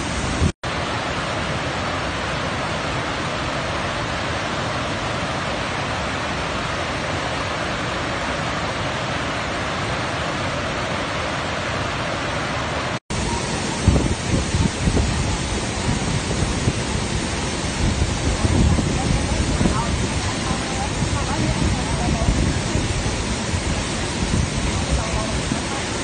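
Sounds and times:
river rapids rushing over rocks: 0:00.0 - 0:26.0
waterfall with low rumbling: 0:00.0 - 0:26.0.

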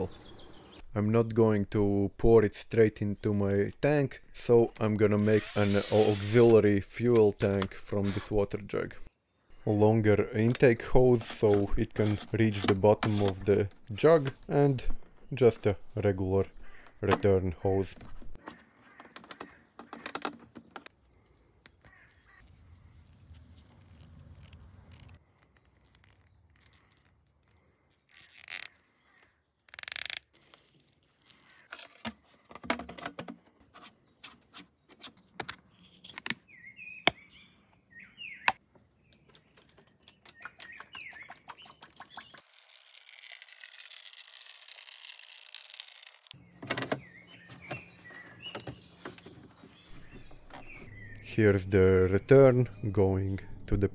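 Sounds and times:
birds chirping: 0:00.0 - 0:01.0, 0:02.8 - 0:23.2, 0:33.5 - 0:42.5, 0:46.3 - 0:53.9
hands handling plastic water jug: 0:10.4 - 0:15.2.

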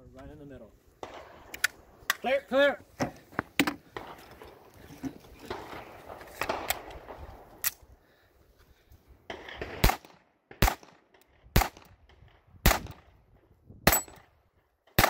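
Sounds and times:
pistol shots with echo: 0:09.4 - 0:11.0, 0:11.6 - 0:11.9, 0:12.6 - 0:13.0, 0:13.9 - 0:14.3.

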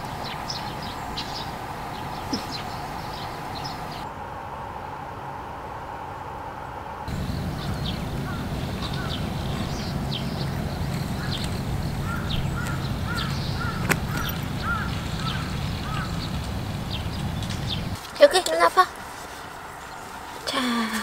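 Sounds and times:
steady low rumble: 0:06.9 - 0:18.0
birds chirping and whistling: 0:07.1 - 0:18.0.

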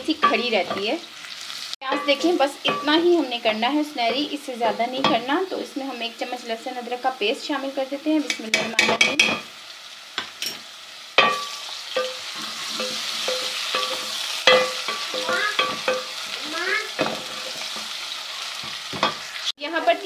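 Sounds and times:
onions sizzling in hot ghee: 0:00.0 - 0:20.0
spoon scraping a pot: 0:11.2 - 0:16.4.

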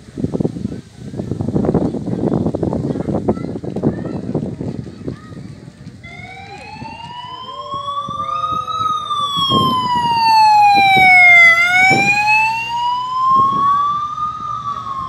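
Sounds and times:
motorcycle siren wailing: 0:06.0 - 0:15.0.

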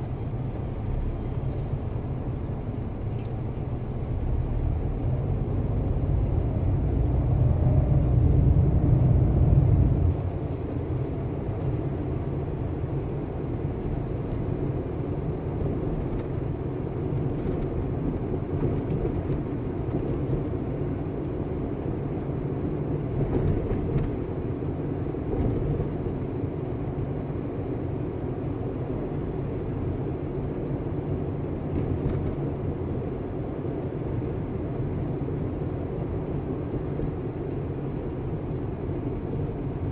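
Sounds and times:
car engine and road rumble: 0:00.0 - 0:39.9.

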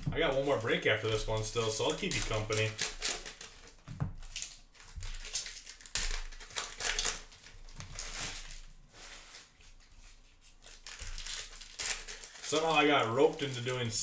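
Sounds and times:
cards rustling and sliding: 0:00.0 - 0:14.0.

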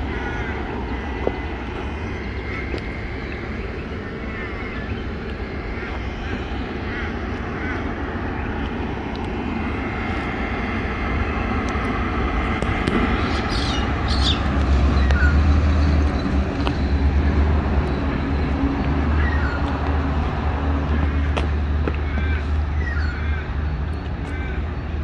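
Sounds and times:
low engine rumble: 0:00.0 - 0:25.0.

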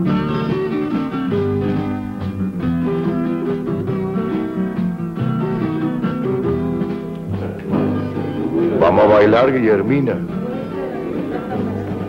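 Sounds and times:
plucked string music: 0:00.0 - 0:12.0.

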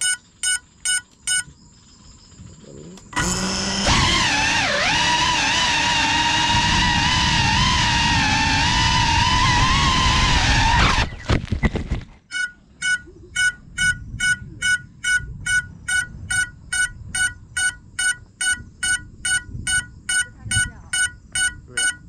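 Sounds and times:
short high beeps: 0:00.0 - 0:01.5, 0:12.3 - 0:22.0.

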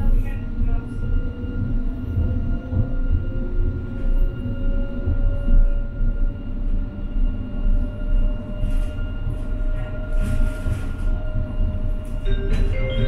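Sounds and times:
tram wheels rumbling: 0:00.0 - 0:13.0.

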